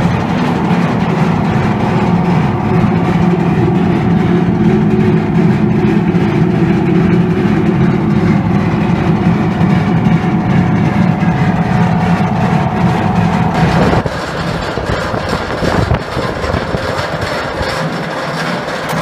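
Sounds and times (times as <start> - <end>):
hammer mill drone with rattle: 0.0 - 19.0.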